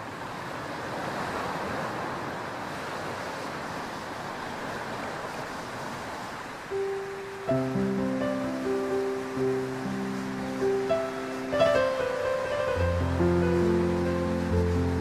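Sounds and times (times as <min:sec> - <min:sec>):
sea surf rushing: 0:00.0 - 0:15.0
held musical note: 0:06.9 - 0:15.0.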